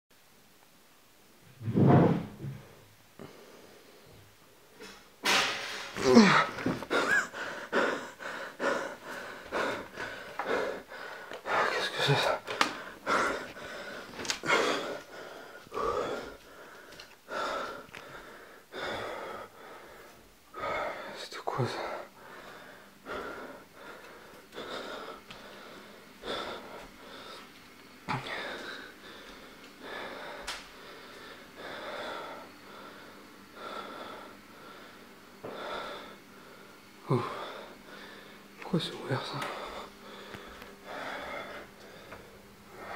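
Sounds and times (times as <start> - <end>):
person breathing heavily: 2.4 - 5.0, 5.7 - 27.5, 28.1 - 42.9
person gasping: 6.0 - 21.2.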